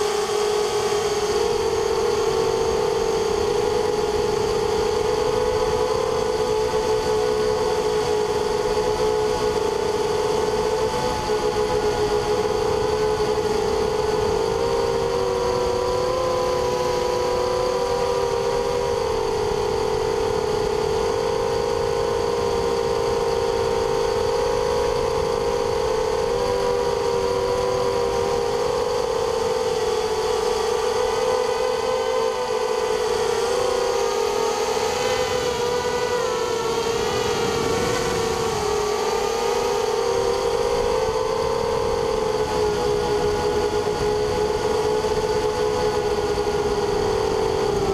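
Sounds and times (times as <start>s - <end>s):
drone motors buzzing: 0.0s - 47.9s
low rushing noise: 31.6s - 45.2s.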